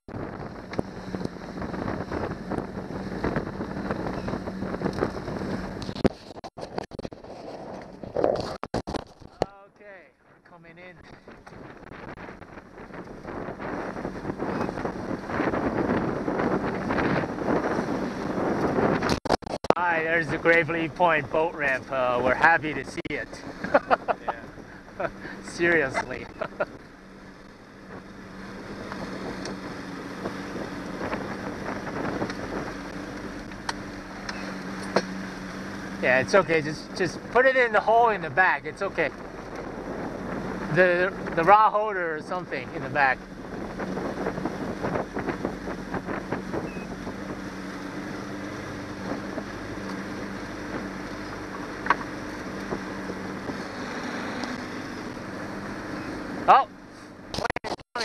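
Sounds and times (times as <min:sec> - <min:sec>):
outboard motor droning: 0:00.0 - 0:58.0
wind buffeting microphone: 0:00.1 - 0:58.0
hull knocking on waves: 0:27.8 - 0:36.0, 0:42.7 - 0:56.6.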